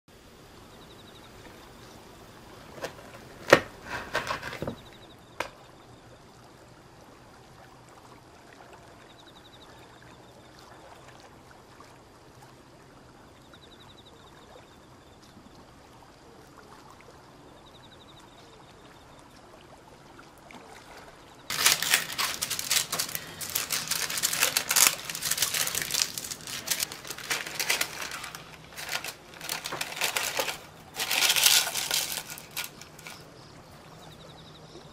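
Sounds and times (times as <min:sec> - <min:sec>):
baking paper crinkling: 0:02.5 - 0:05.5, 0:21.5 - 0:33.2.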